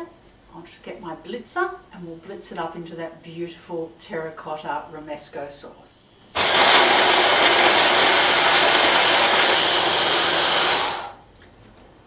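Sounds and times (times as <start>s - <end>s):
stick blender whirring: 6.4s - 11.2s.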